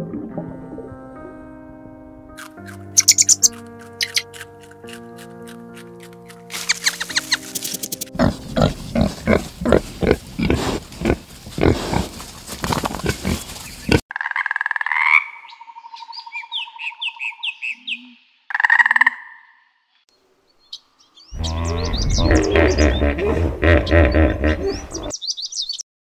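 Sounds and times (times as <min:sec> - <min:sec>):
pigs grunting: 0:08.2 - 0:14.0, 0:21.4 - 0:25.2.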